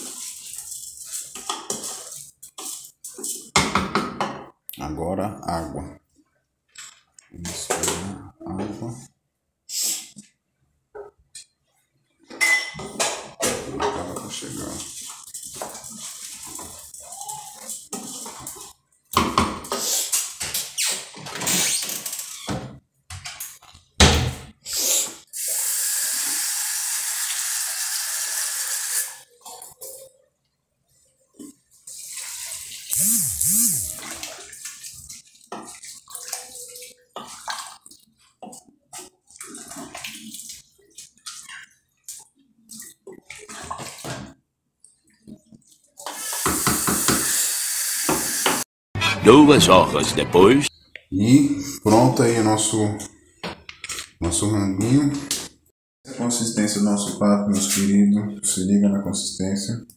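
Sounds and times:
spoon scraping in a pot: 0.0s - 3.6s
water running: 13.9s - 18.8s, 25.4s - 30.0s, 31.1s - 44.1s.

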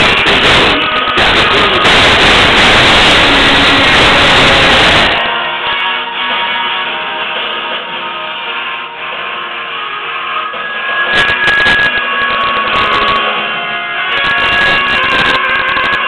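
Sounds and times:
sharp drum hits: 0.0s - 5.3s
karaoke backing track with guitar: 0.0s - 16.0s.

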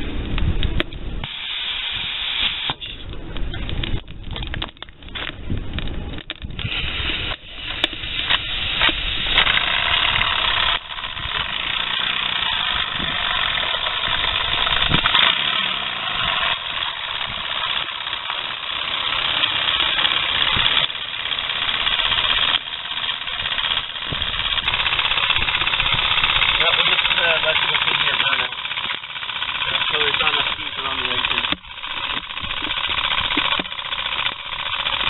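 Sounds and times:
steam hissing: 1.2s - 3.0s
model steam engine chuffing: 8.4s - 35.0s.

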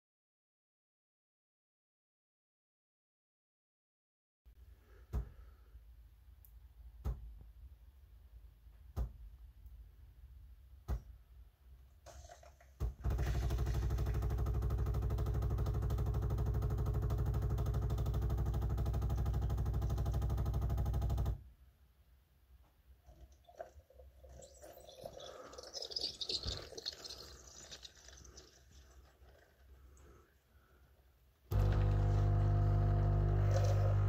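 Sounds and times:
coffee brewing hiss and gurgle: 12.1s - 19.8s, 22.9s - 34.0s
coffee machine pump buzzing: 13.0s - 21.3s, 31.5s - 34.0s.

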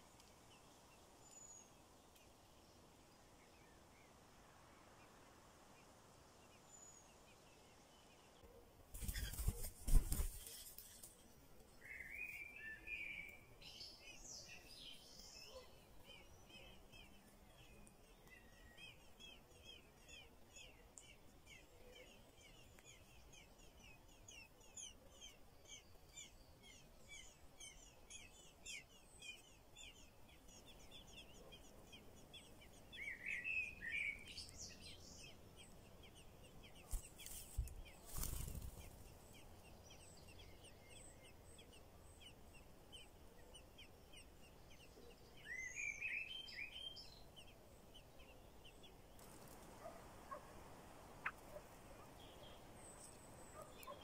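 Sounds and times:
nestlings chirping: 11.8s - 54.0s.

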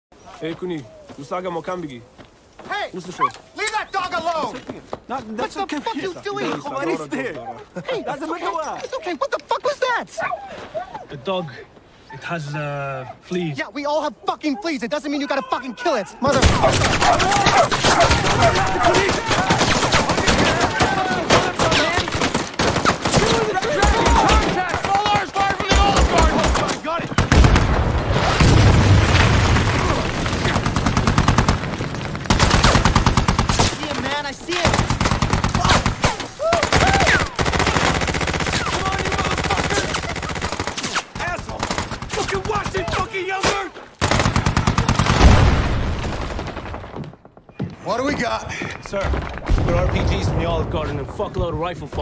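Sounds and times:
machine gun automatic fire: 16.4s - 27.7s.

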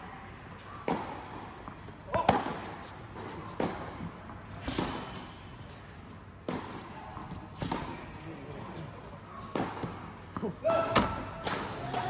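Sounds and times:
tennis ball impacts: 0.8s - 5.3s, 6.4s - 8.1s, 9.5s - 12.0s.

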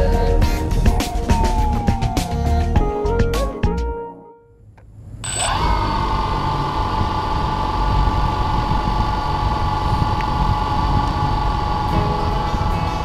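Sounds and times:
drone motors whining: 5.2s - 13.0s.

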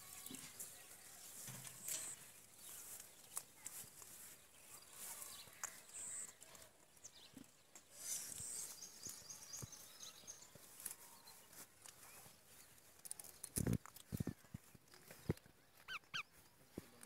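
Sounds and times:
soft high chirps: 15.8s - 16.3s.

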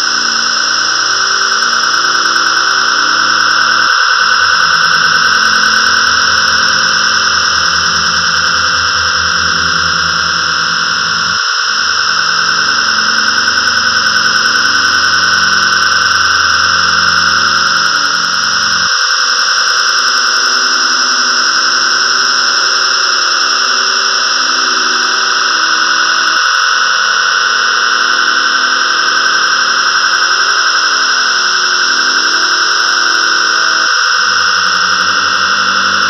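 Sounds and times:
low droning synth tones: 0.0s - 18.9s, 27.5s - 36.0s
synthesizer stormy noise wash: 0.0s - 18.9s.

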